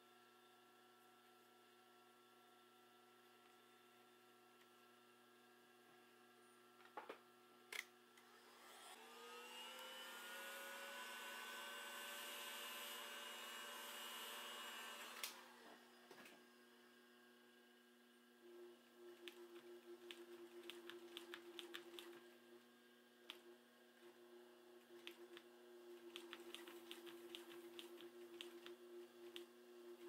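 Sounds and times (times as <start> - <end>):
heat gun fan whine: 7.0 - 30.0.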